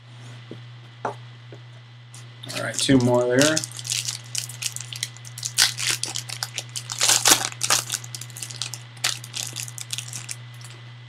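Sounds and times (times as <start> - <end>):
wrapper tearing and crinkling: 2.5 - 10.8.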